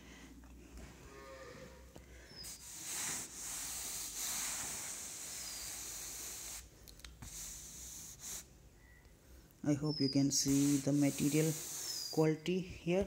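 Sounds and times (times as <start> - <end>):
hand rubbing on terry cloth: 10.1 - 12.3.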